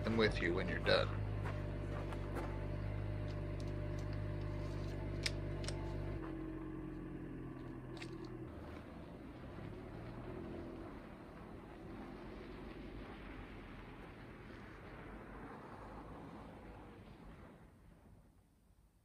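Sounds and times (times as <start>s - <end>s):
car engine idling: 0.0s - 17.7s
car pulling away: 0.0s - 18.3s.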